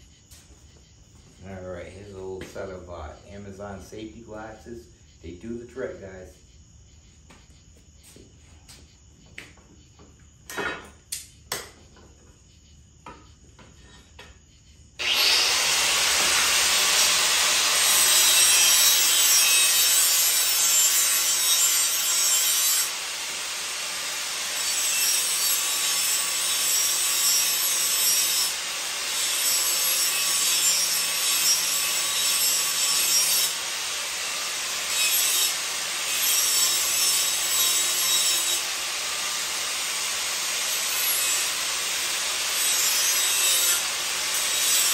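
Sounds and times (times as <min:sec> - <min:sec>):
angle grinder grinding steel: 0:15.0 - 0:44.9.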